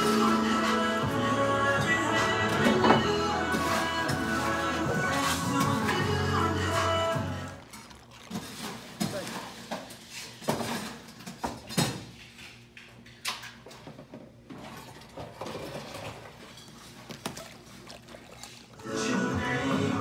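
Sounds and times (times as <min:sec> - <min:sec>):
glass bottles and glasses clinking: 0:02.6 - 0:06.5.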